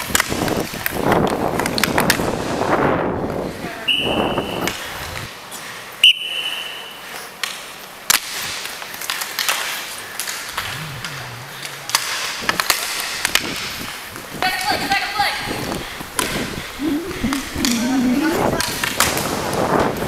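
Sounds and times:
skate wheels and sticks clattering: 0.0 - 2.8, 6.4 - 10.6, 18.6 - 20.0
referee's whistle blasts: 3.9 - 4.7.

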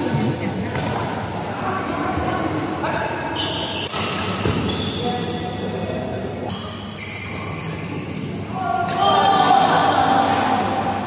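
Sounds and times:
shoe squeaks on court floor: 3.3 - 5.6, 6.5 - 8.4
racket hitting shuttlecock: 10.2 - 10.9.

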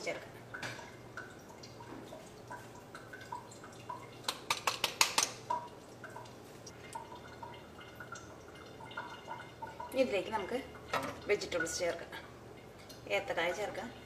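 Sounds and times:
lentils bubbling in a wok: 0.0 - 14.0
small pops and plops: 0.6 - 10.0
sharp clicks and taps: 4.3 - 5.4.

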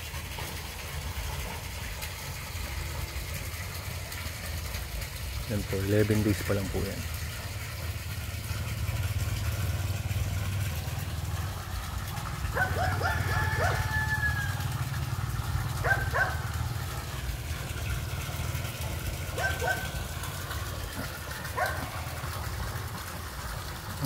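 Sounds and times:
dog barking: 12.5 - 13.8, 15.8 - 16.5, 19.4 - 20.0, 21.5 - 22.0.

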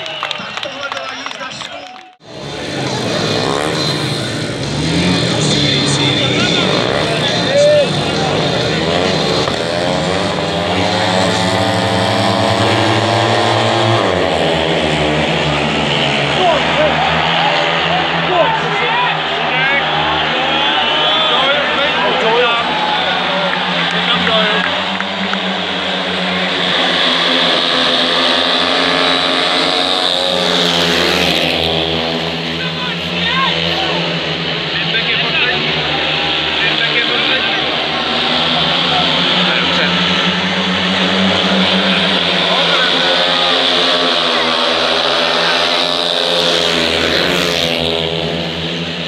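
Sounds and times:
motorcycle engines racing: 0.0 - 49.0.

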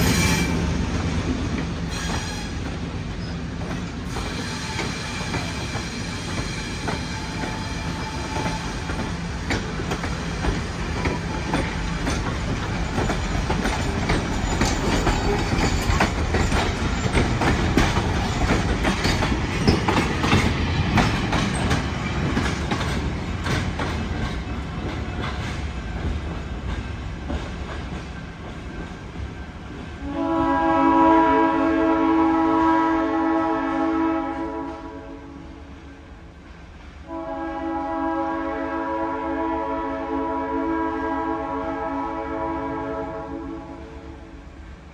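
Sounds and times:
train wheels clicking over rail joints: 0.0 - 30.0.

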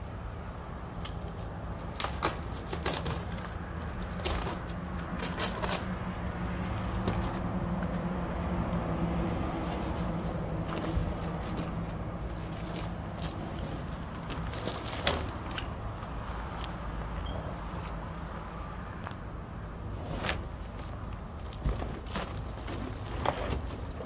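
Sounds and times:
steady low hum: 0.0 - 24.0
plastic sheets clicking and cracking: 1.0 - 5.9.

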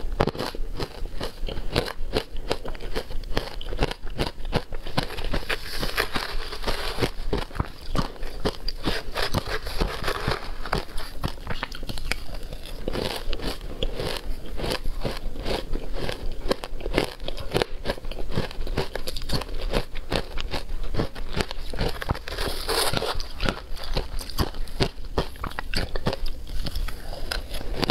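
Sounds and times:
crunching and chewing ice: 0.0 - 27.9.

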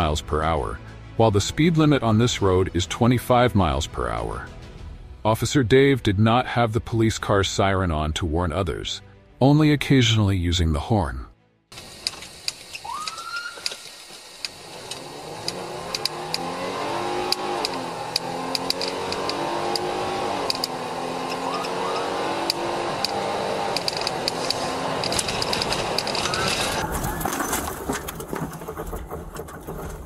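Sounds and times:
sharp ticks: 11.7 - 16.5, 17.2 - 26.8
car engine accelerating: 13.9 - 30.0.

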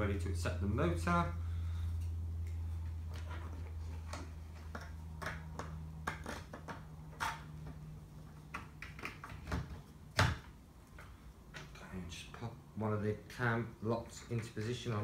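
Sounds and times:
plastic parts clicking and knocking: 4.0 - 7.8.

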